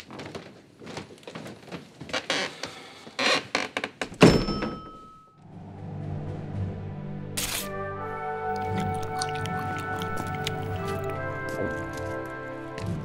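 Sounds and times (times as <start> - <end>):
loud thunk against door: 4.1 - 5.0
soft music: 5.2 - 13.0.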